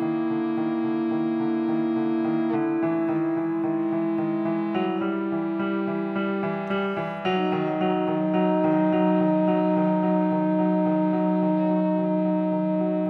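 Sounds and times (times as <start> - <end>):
electric guitar: 0.0 - 13.0
repeated piano figure: 0.0 - 13.0
alto saxophone held notes: 2.7 - 13.0.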